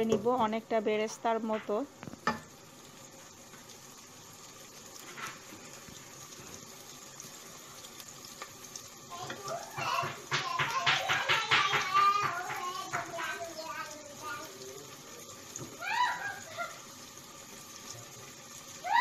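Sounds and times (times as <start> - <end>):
onions sizzling in pot: 0.0 - 19.0
wooden spoon knock: 9.8 - 13.1.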